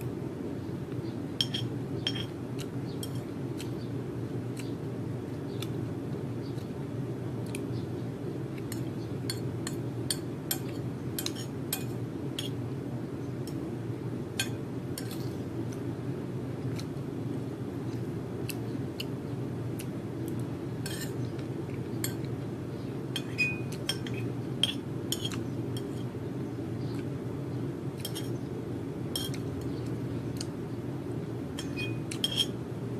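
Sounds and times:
steady low hum: 0.0 - 32.9
metal spoon scraping ceramic plate: 20.8 - 21.2, 31.6 - 32.6.

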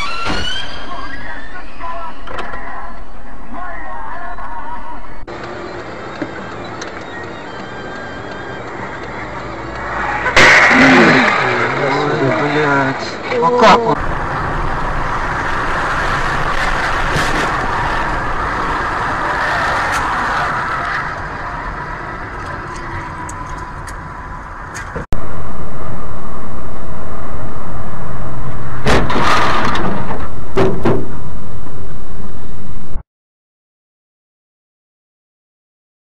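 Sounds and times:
sharp noises: 0.0 - 13.3
car driving on highway: 0.0 - 33.0
distorted rushing vehicle noise: 0.0 - 33.0.

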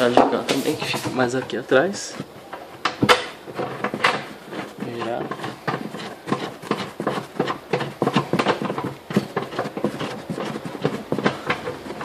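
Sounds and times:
nuts turned by hand clicking: 2.8 - 12.0.

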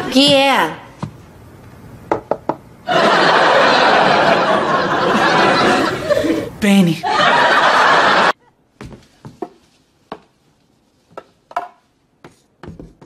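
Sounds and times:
audience laughing: 2.9 - 8.4.

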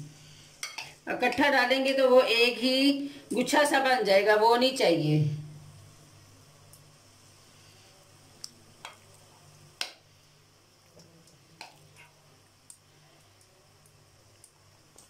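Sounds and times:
low steady hum: 0.0 - 15.0
oil crackling and popping: 10.8 - 15.0.

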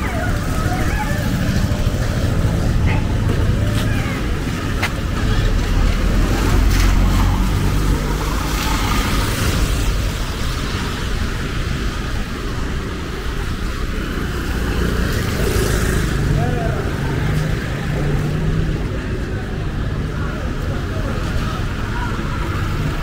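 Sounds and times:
traffic engine rumble: 0.0 - 23.0
tyres hissing on wet road: 4.4 - 16.3.

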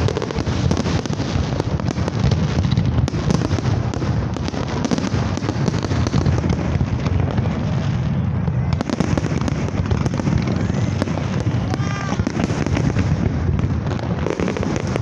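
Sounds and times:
fireworks bursting: 0.0 - 15.0.

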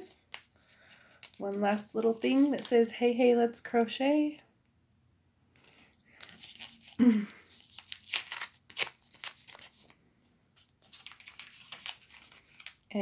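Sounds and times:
paper packet tearing and crinkling: 0.2 - 2.7, 5.6 - 10.0, 10.6 - 12.9.

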